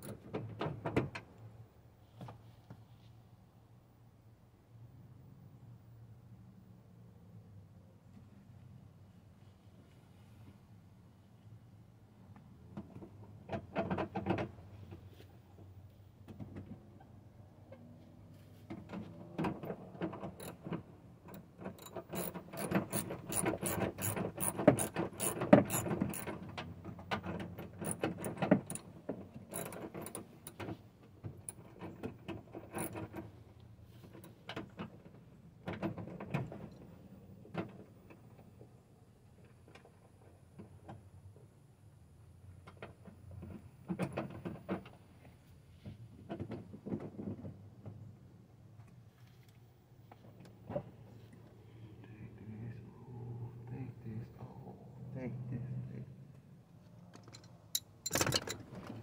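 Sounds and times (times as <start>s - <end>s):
ratchet wrench clicking: 21.8s - 26.3s.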